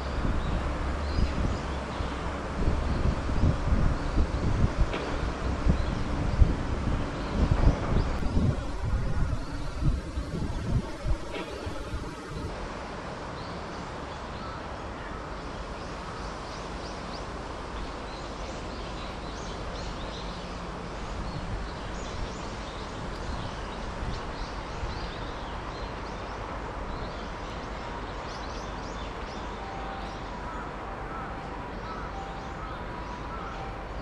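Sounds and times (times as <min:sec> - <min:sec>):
steady background hum: 0:05.6 - 0:13.2.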